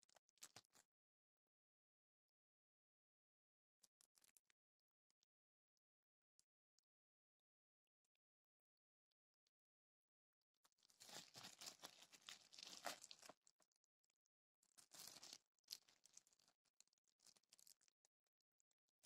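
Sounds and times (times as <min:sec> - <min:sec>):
plastic wrap crinkling: 0:11.0 - 0:13.3, 0:14.9 - 0:15.4.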